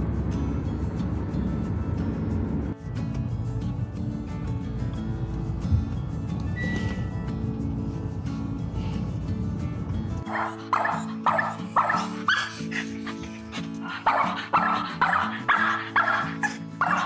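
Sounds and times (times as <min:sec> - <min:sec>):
background music: 0:00.0 - 0:17.0
dog barking sharply: 0:10.3 - 0:12.6, 0:14.0 - 0:17.0.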